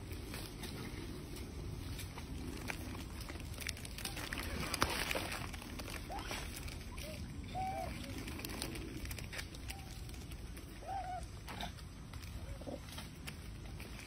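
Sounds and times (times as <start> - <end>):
low background rumble: 0.0 - 14.0
macaque coo calls: 6.0 - 9.0, 9.6 - 11.8.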